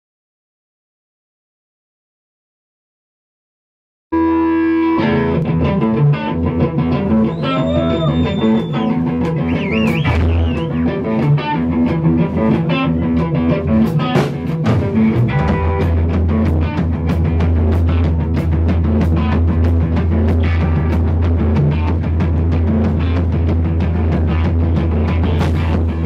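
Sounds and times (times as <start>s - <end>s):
guitar note bends: 4.2s - 16.9s
rock band playing live: 4.2s - 26.0s.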